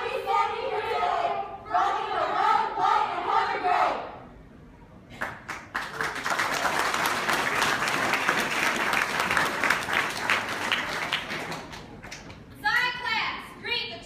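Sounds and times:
audience applause: 0:05.2 - 0:12.3.

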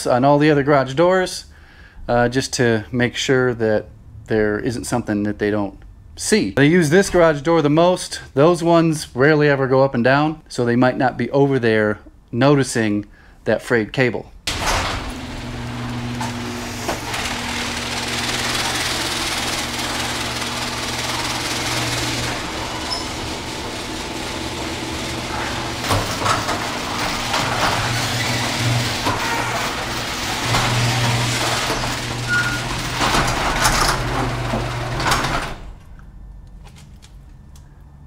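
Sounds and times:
door rollers rattling and clanking: 0:14.5 - 0:35.9
garage door opener motor hum: 0:14.5 - 0:36.2.

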